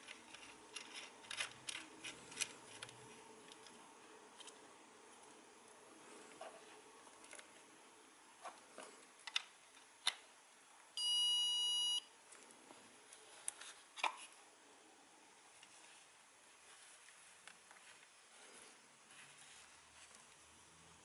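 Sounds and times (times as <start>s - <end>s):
high buzzer beep: 11.0s - 12.1s.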